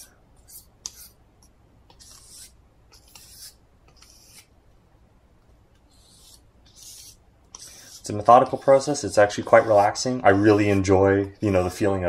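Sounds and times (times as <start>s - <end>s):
knife scraping on sharpening stone: 1.9s - 4.5s, 6.0s - 10.9s.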